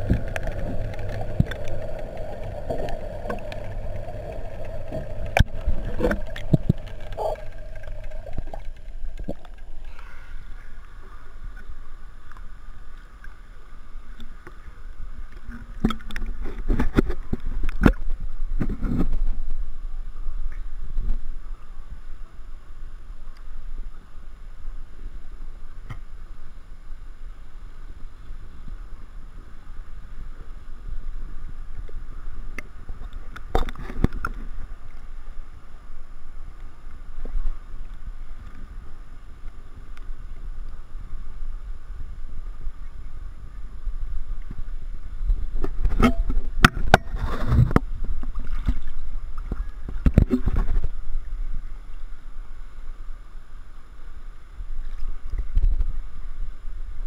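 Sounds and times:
water lapping and sloshing: 0:00.0 - 0:19.2, 0:44.3 - 0:52.1.

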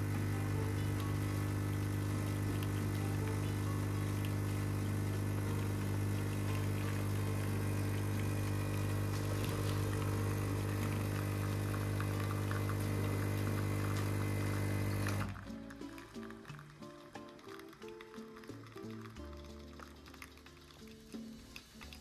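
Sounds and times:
espresso machine pump humming: 0:00.0 - 0:15.4.

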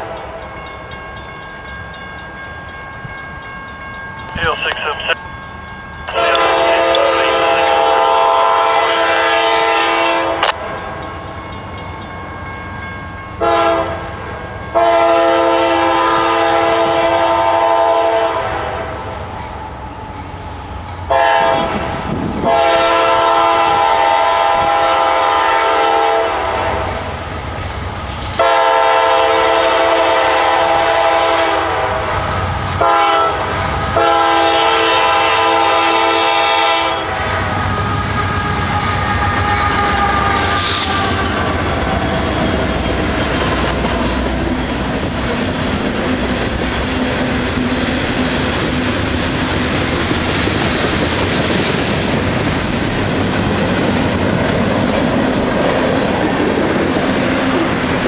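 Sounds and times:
locomotive engines rumbling: 0:00.0 - 0:25.5, 0:31.8 - 0:58.0
train air horn blowing: 0:06.1 - 0:10.6, 0:13.4 - 0:14.0, 0:14.8 - 0:18.9, 0:21.1 - 0:26.9, 0:28.4 - 0:32.2, 0:32.8 - 0:41.8.

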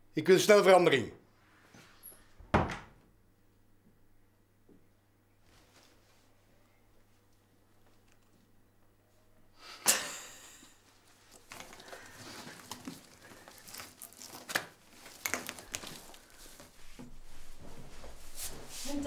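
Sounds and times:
plastic tubing and gown rustling: 0:05.4 - 0:08.5, 0:10.8 - 0:19.0.

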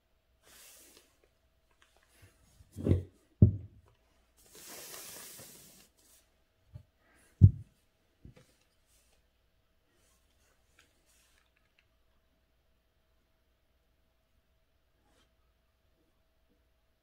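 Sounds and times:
dull thumps: 0:02.8 - 0:03.8, 0:07.4 - 0:07.7
brush swishing on paper: 0:04.4 - 0:06.3
soft rustle: 0:08.3 - 0:12.0.

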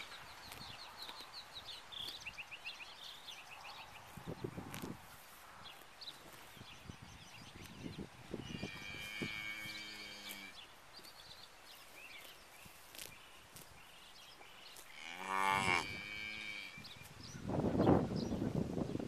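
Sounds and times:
cow mooing: 0:08.6 - 0:10.6, 0:14.9 - 0:16.8.

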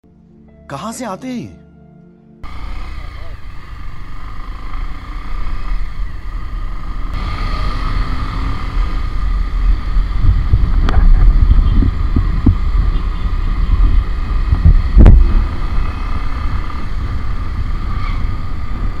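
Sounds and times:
motorcycle engine running: 0:02.4 - 0:19.0
road noise: 0:02.4 - 0:19.0
wind on microphone: 0:07.1 - 0:19.0.

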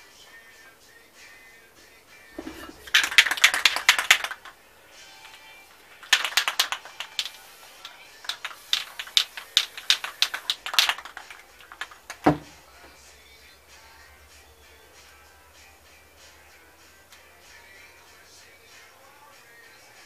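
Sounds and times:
faint music: 0:00.0 - 0:20.0
spray can ball rattling: 0:02.4 - 0:12.6.

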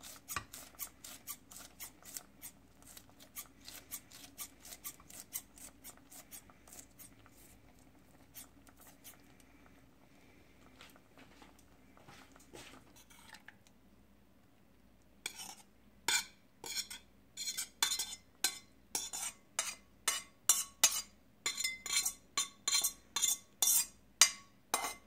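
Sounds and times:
metal spoon scraping steel pan: 0:00.0 - 0:07.1, 0:15.2 - 0:25.0
soft stirring: 0:00.0 - 0:13.8, 0:14.4 - 0:25.0.

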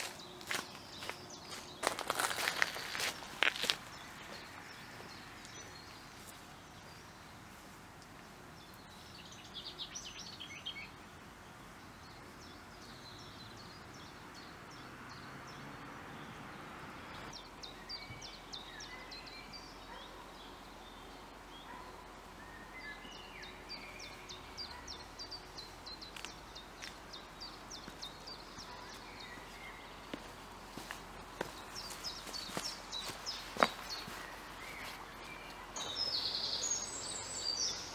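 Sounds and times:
footsteps: 0:00.0 - 0:08.2, 0:28.8 - 0:36.2
faint background hiss: 0:00.0 - 0:37.9
small birds chirping: 0:00.0 - 0:37.9.

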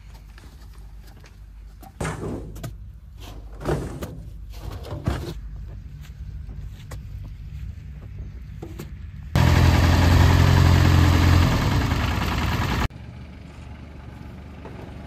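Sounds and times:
low engine hum: 0:05.4 - 0:15.0.

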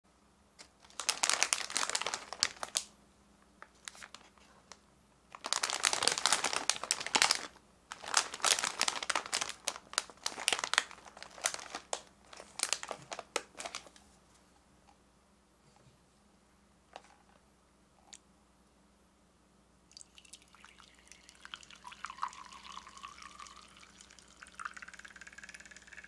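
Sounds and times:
plastic bag crinkling: 0:00.6 - 0:02.9, 0:03.6 - 0:04.5, 0:05.3 - 0:14.0.

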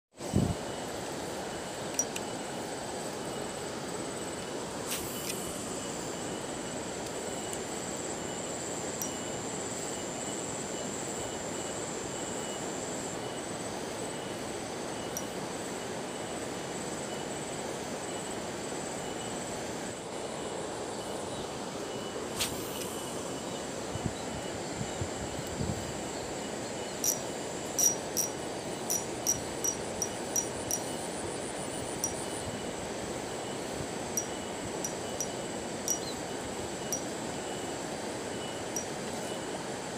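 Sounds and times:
insect trilling: 0:05.6 - 0:10.6, 0:26.1 - 0:39.5.

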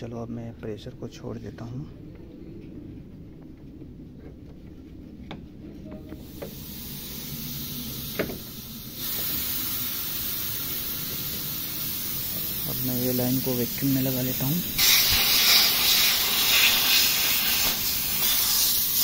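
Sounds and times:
pressurized air hissing: 0:06.2 - 0:19.0.

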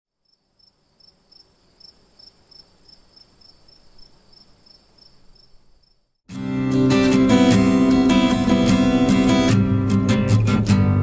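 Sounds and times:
crickets chirping: 0:00.1 - 0:06.2.

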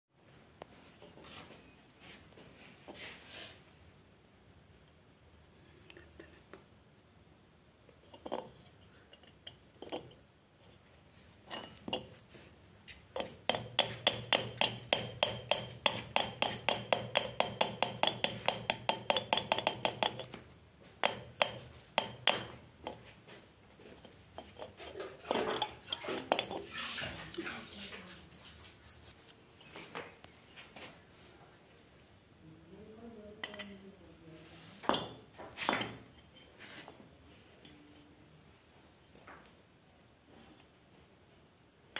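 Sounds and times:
metal rod tapping metal: 0:13.1 - 0:23.1.

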